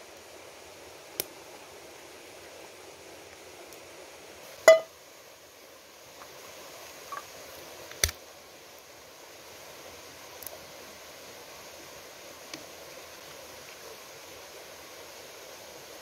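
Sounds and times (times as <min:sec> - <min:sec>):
faint outdoor background: 0:00.0 - 0:16.0
metal clink ringing: 0:04.7 - 0:04.9.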